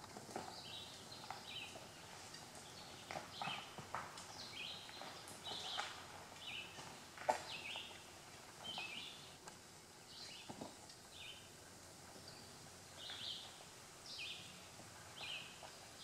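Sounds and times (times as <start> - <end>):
loose rock crunching and knocking: 0.0 - 9.6
songbirds singing: 0.4 - 16.0.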